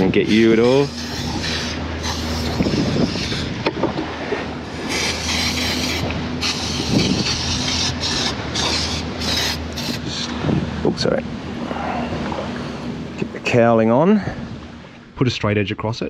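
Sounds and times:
steady low hum: 0:00.0 - 0:16.0
aerosol can spraying: 0:00.8 - 0:03.4, 0:04.9 - 0:10.3.

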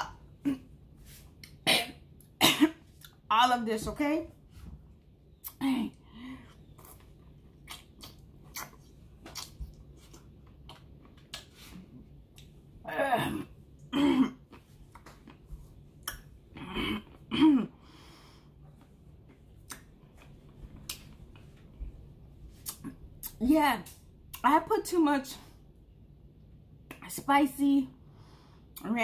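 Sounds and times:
person coughing: 0:01.7 - 0:02.8, 0:13.0 - 0:14.4, 0:16.6 - 0:17.8.

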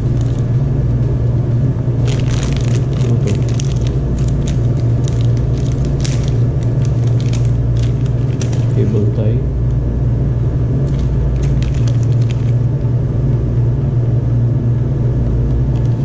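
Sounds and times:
plastic bag crinkling: 0:00.0 - 0:00.5, 0:02.0 - 0:09.2, 0:10.8 - 0:12.7
loud steady low hum: 0:00.0 - 0:16.0.

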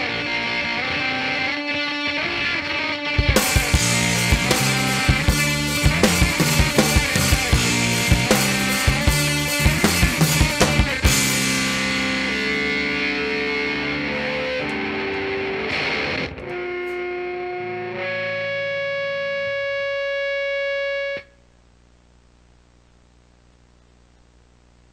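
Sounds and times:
distorted guitar and bass ringing: 0:00.0 - 0:21.6
drum hits: 0:03.2 - 0:12.3.

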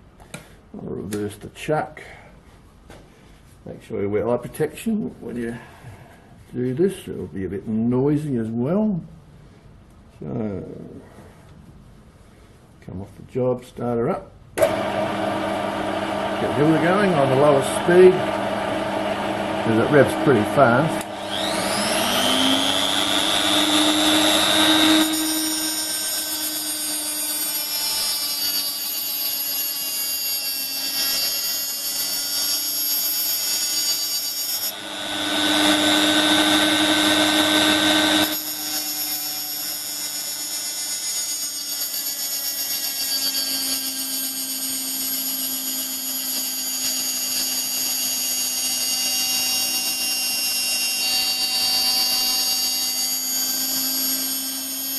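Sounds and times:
grinder whining on steel: 0:14.6 - 0:54.9.

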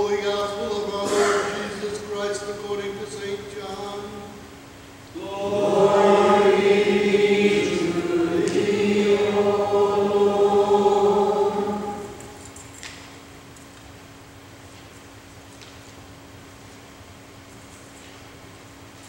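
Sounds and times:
choir and congregation chanting: 0:05.1 - 0:12.6.

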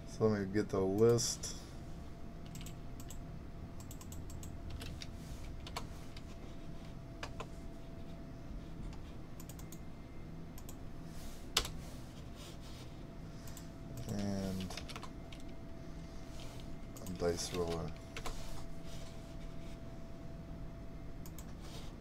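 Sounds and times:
faint steady hum: 0:00.0 - 0:22.0
keyboard and mouse clicks: 0:02.4 - 0:03.2, 0:03.8 - 0:06.3, 0:08.9 - 0:09.8, 0:17.0 - 0:18.4, 0:21.2 - 0:21.6.

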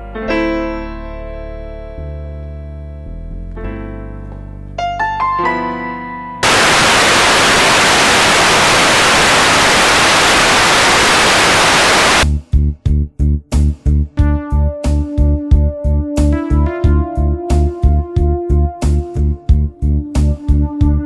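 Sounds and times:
tv static hiss: 0:06.4 - 0:12.2.

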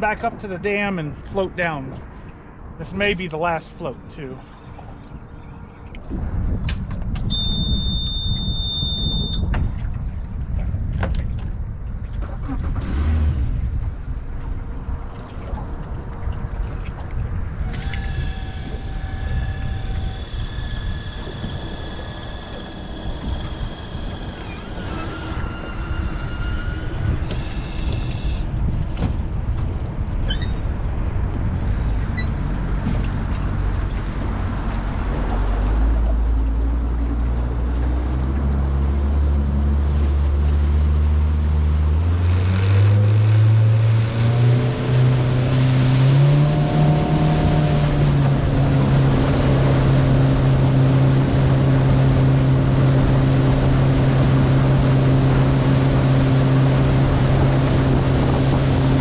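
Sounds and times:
wind noise: 0:04.4 - 0:38.6, 0:42.2 - 0:59.0
outboard motor running: 0:13.4 - 0:25.7, 0:32.5 - 0:59.0
electric motor whining: 0:17.7 - 0:25.4
rushing water: 0:28.6 - 0:59.0.

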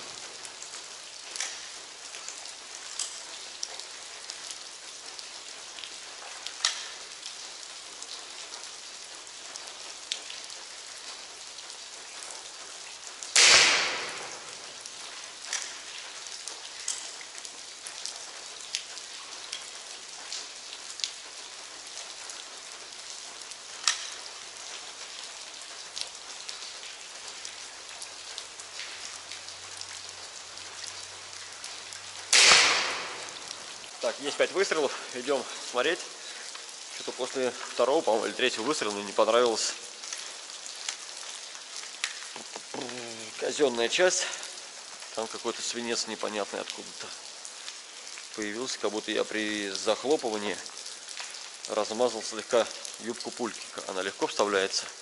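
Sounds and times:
air rifle shot: 0:13.4 - 0:14.3, 0:32.3 - 0:33.3.

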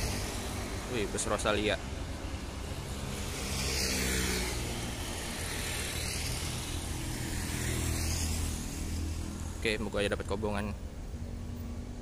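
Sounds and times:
motorcycle driving past: 0:00.0 - 0:01.0, 0:02.3 - 0:09.6.

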